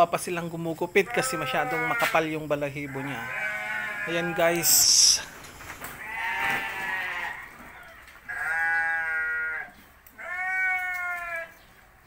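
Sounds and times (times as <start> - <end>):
sheep bleating: 1.1 - 2.2, 2.8 - 5.3, 5.9 - 11.6.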